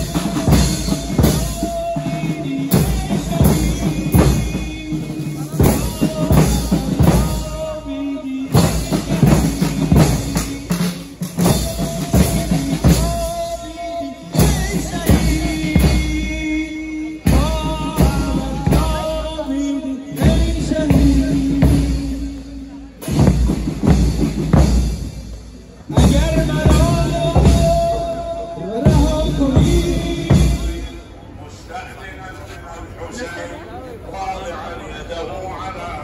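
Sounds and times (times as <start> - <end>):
person singing a lament: 0.0 - 22.8, 26.0 - 31.1.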